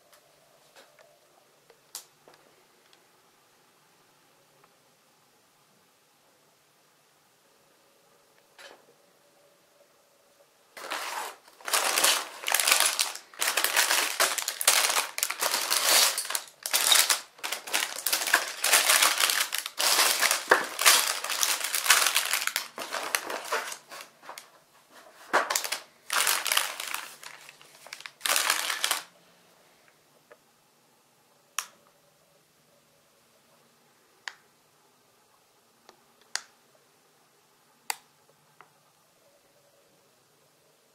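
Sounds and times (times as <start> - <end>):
plastic bags crinkling: 10.8 - 24.5, 25.1 - 29.2.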